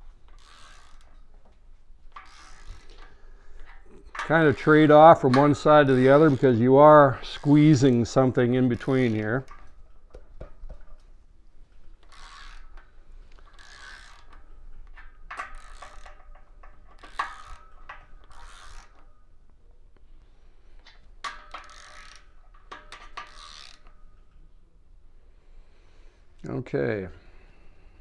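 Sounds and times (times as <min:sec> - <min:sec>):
torque wrench ratchet clicks: 0:00.2 - 0:01.4, 0:02.1 - 0:10.3, 0:12.0 - 0:19.3, 0:20.9 - 0:24.3.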